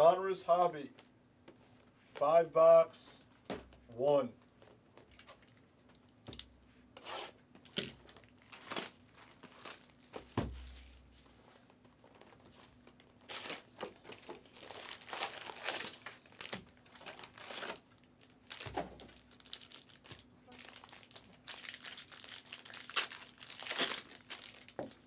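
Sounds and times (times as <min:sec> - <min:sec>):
plastic wrap tearing and crinkling: 0:07.7 - 0:11.0, 0:13.0 - 0:25.0.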